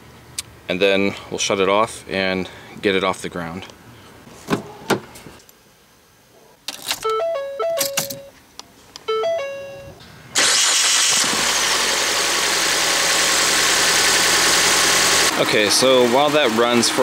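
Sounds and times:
dashboard electronic chimes: 7.0s - 8.4s, 9.1s - 10.0s
car engine idling: 10.4s - 17.0s.

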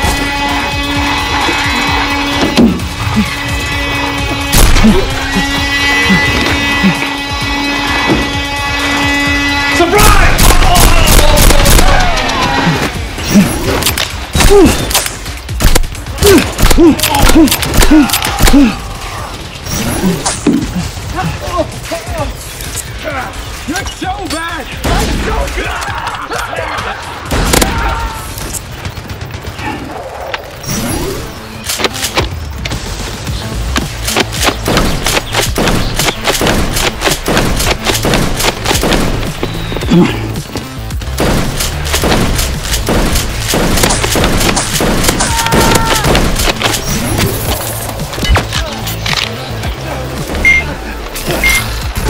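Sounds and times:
rapid gunshot sound effects: 10.1s - 12.2s, 31.8s - 39.7s, 41.0s - 47.1s.

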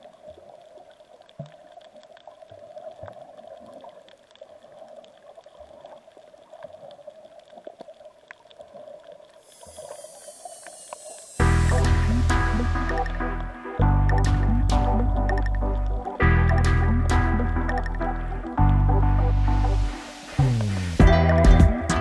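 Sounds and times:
faint underwater clicks: 0.0s - 21.5s
muffled underwater wash: 0.0s - 21.8s
loud music: 11.4s - 22.0s.

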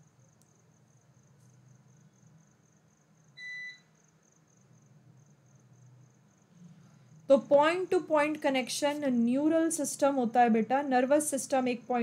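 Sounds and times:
low room hum: 0.0s - 12.0s
short electronic beep: 3.4s - 3.8s.

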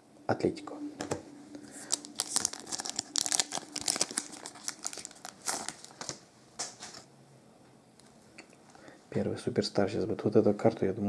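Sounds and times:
foil wrapper tearing and crinkling: 1.7s - 6.2s.

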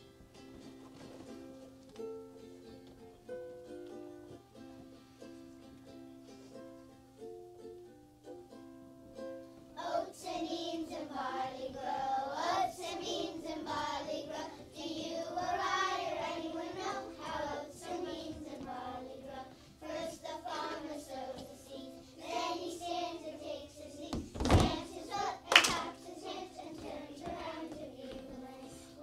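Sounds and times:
children singing: 9.8s - 29.0s.

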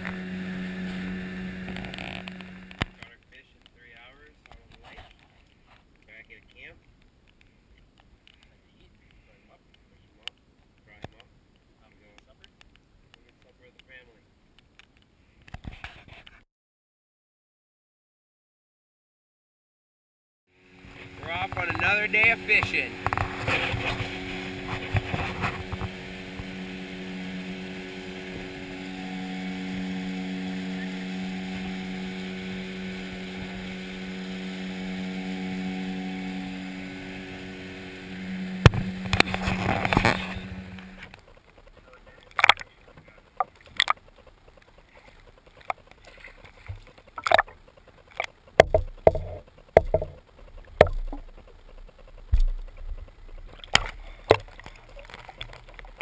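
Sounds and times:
outboard motor running: 0.0s - 3.1s, 20.6s - 56.0s
water noise: 0.0s - 12.7s, 20.5s - 56.0s
sharp knocks and clicks: 46.6s - 56.0s.

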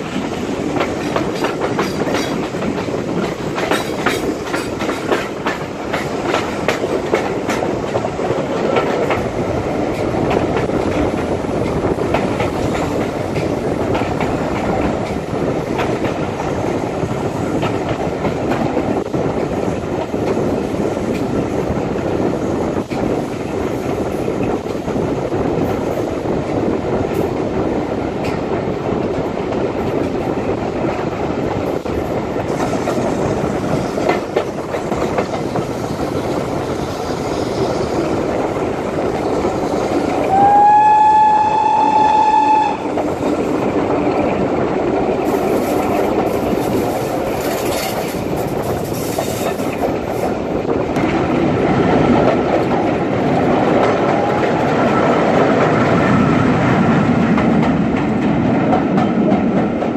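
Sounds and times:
steam train running: 0.0s - 59.9s
steam train whistle blast: 40.3s - 42.9s.

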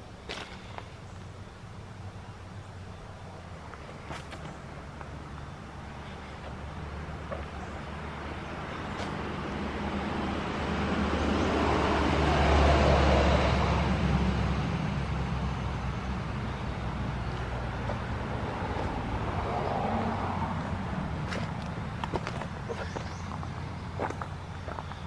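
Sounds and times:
vehicle passing on road: 0.0s - 25.0s.

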